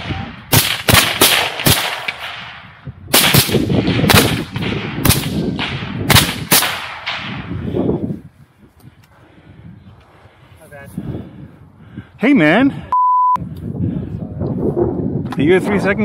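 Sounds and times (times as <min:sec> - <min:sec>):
rapid rifle fire: 0:00.5 - 0:07.4.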